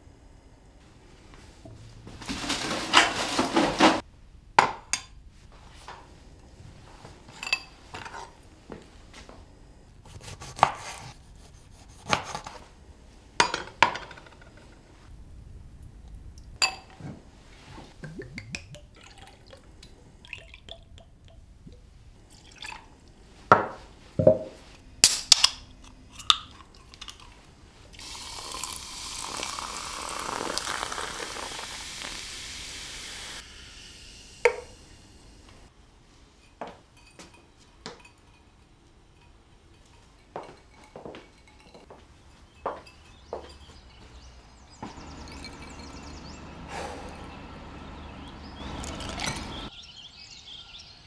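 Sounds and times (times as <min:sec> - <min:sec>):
glass and ice clinking: 0:07.4 - 0:07.8, 0:16.6 - 0:17.0, 0:28.0 - 0:32.2, 0:36.4 - 0:47.4, 0:48.5 - 0:49.7
liquid pouring into glass: 0:18.0 - 0:21.4, 0:22.3 - 0:22.9, 0:28.0 - 0:32.7, 0:48.7 - 0:49.5.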